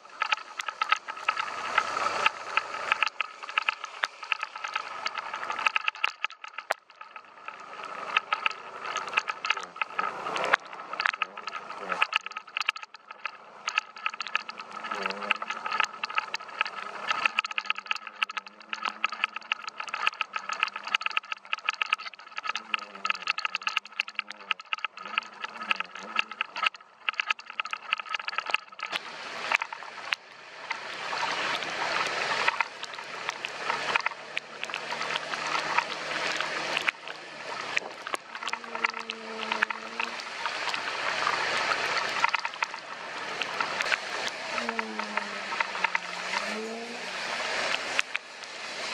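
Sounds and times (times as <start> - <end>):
motor scooter riding: 0.0 - 5.4, 29.0 - 48.9
raindrops tapping on camera: 0.0 - 48.9
water spray rushing: 0.0 - 48.9.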